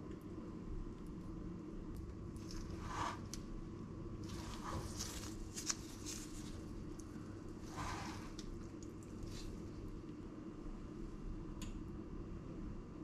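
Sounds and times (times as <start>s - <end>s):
steady low hum: 0.0s - 13.0s
spoon squishing and scraping sauce: 2.4s - 3.5s, 4.2s - 9.9s.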